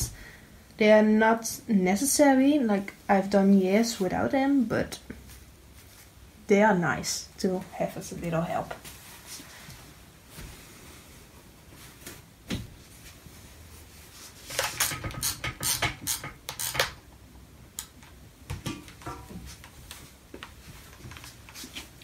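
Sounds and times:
fabric rustling: 0:05.2 - 0:06.3, 0:08.2 - 0:14.6, 0:19.1 - 0:22.0.

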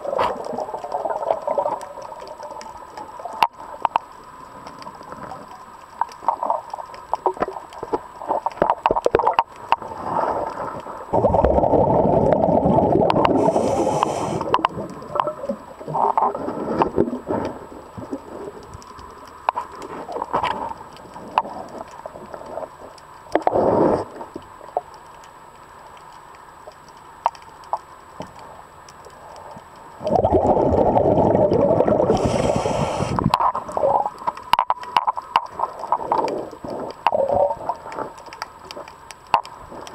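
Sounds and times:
diver's breath bubbling underwater: 0:11.1 - 0:14.8, 0:30.0 - 0:34.2.

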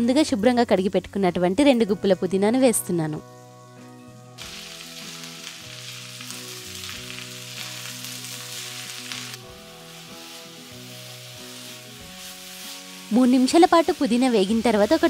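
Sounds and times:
quiet background music: 0:00.0 - 0:15.0
leaves sizzling in hot oil: 0:04.4 - 0:15.0.

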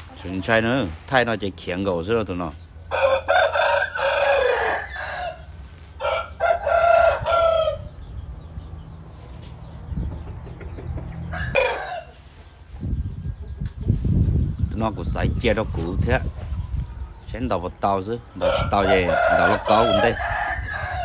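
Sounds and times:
rooster crowing: 0:02.9 - 0:07.9, 0:18.4 - 0:21.0.

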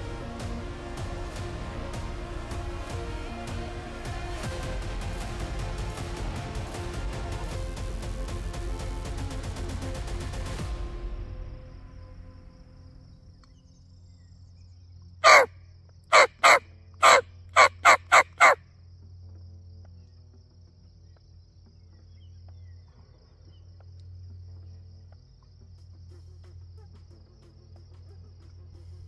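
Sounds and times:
turkey yelps: 0:15.2 - 0:15.5, 0:16.1 - 0:18.6.

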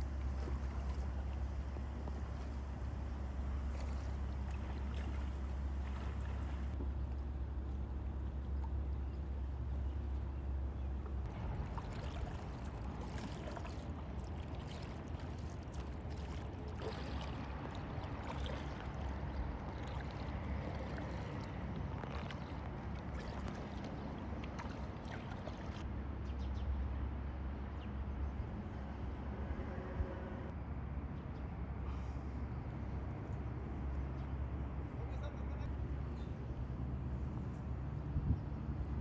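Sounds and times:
paddle splashing in water: 0:00.0 - 0:02.8, 0:03.5 - 0:06.8, 0:11.2 - 0:25.9
steady low rumble: 0:00.0 - 0:26.2.

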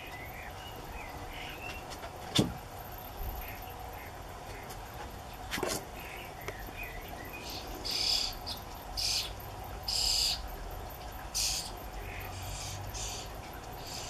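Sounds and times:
nestlings harsh begging calls: 0:06.0 - 0:10.5, 0:11.3 - 0:14.0.

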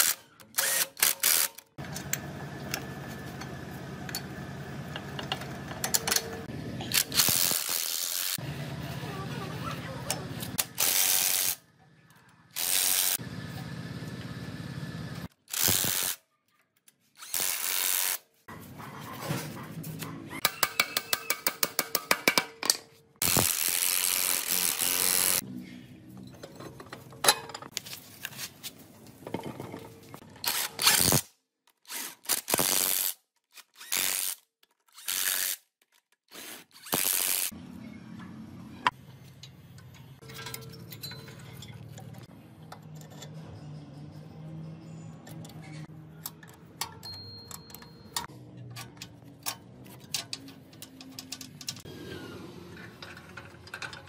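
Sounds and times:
impact wrench running in bursts: 0:12.6 - 0:13.2, 0:15.5 - 0:16.2, 0:23.2 - 0:25.4.

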